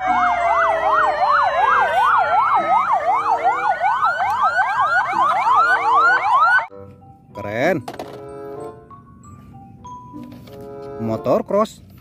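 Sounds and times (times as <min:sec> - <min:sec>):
siren whoops: 0:00.0 - 0:06.7
ambulance sirens wailing: 0:00.0 - 0:09.2.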